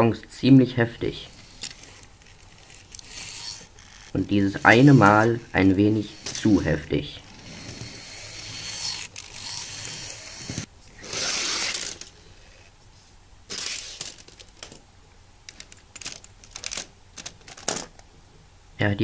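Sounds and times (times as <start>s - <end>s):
plastic wagons clattering: 15.6s - 18.0s.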